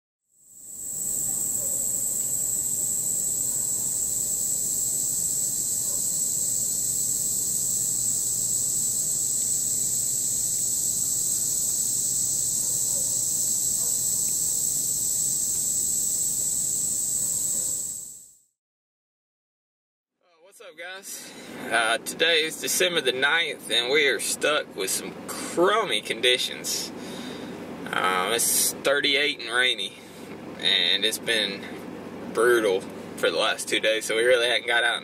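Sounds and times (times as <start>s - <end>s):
insects trilling: 0.3s - 18.3s.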